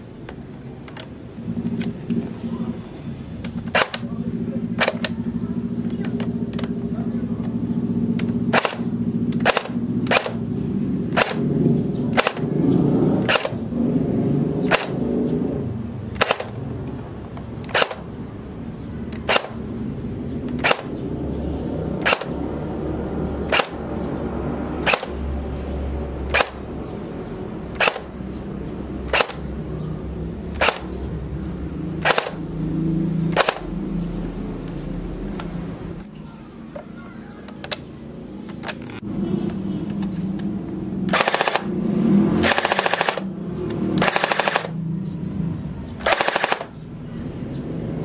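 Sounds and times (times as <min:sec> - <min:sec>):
airsoft gun single shots: 0:03.7 - 0:04.1, 0:08.5 - 0:10.4, 0:11.1 - 0:11.5, 0:12.1 - 0:12.5, 0:13.2 - 0:13.6, 0:14.7 - 0:15.0, 0:16.2 - 0:16.6, 0:17.7 - 0:18.1, 0:19.2 - 0:19.6, 0:20.6 - 0:20.9, 0:22.0 - 0:22.4, 0:23.5 - 0:23.8, 0:29.1 - 0:29.4, 0:32.0 - 0:32.4, 0:46.0 - 0:46.7.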